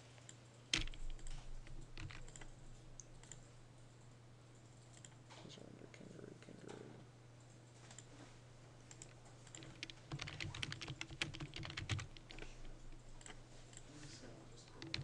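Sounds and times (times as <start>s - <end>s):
mouse and keyboard clicks: 0.7s - 2.5s, 8.9s - 13.8s, 14.7s - 15.0s.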